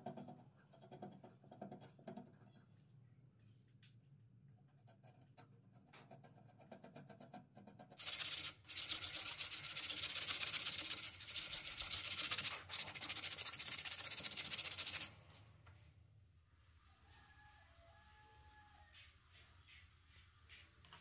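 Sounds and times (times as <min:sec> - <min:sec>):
sandpaper rubbing on wood: 0:08.0 - 0:15.1.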